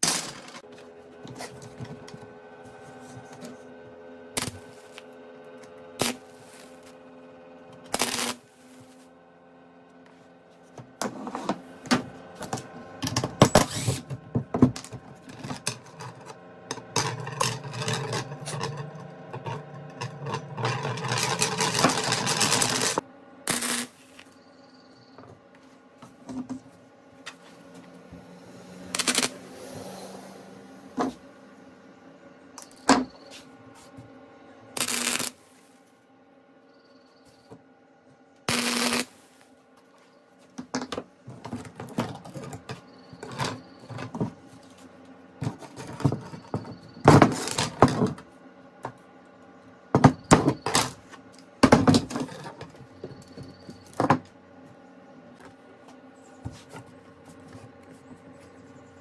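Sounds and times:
arc welder crackling: 0.0 - 0.7, 4.3 - 9.2, 11.6 - 24.4, 28.1 - 29.9, 34.7 - 35.8, 38.4 - 39.5, 47.1 - 48.0.

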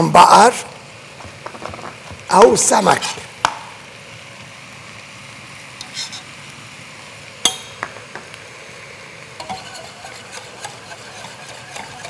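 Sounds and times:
faint steady sizzle: 0.0 - 12.0
spoon scraping pot: 5.8 - 6.3, 9.4 - 12.0.

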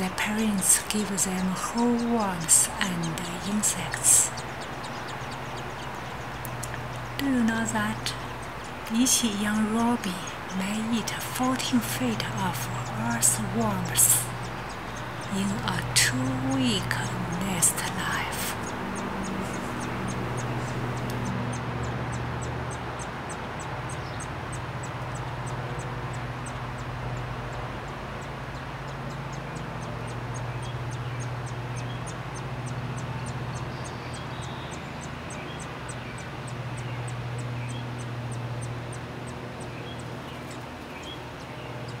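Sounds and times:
low mechanical hum: 0.0 - 42.0
faint high ticks: 2.0 - 21.6.

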